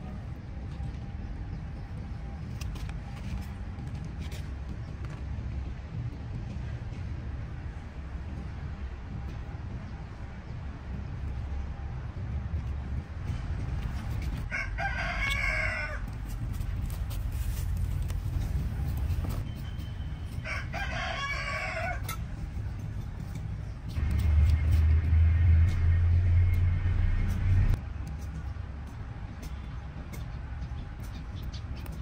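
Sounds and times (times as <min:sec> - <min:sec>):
rooster crowing: 0:14.5 - 0:16.1, 0:20.4 - 0:22.2
low rumble: 0:21.8 - 0:30.6.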